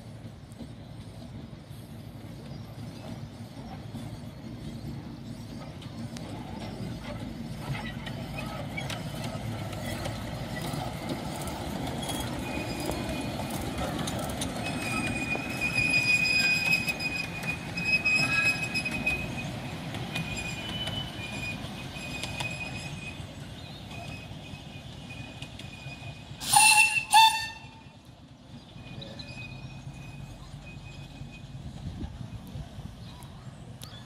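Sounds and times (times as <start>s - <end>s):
steam train rumbling over rails: 0.0s - 34.0s
wheel squeal: 2.3s - 31.8s
train whistle toots: 25.1s - 28.0s.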